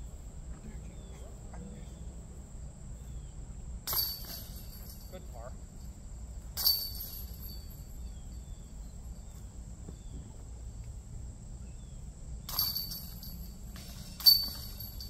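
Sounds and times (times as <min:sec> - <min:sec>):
sharp clink: 0:03.8 - 0:08.6, 0:12.4 - 0:15.0.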